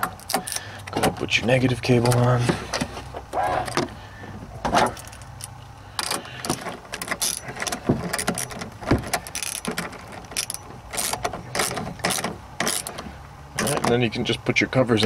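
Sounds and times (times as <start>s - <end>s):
hand ratchet clicking: 5.0s - 13.0s.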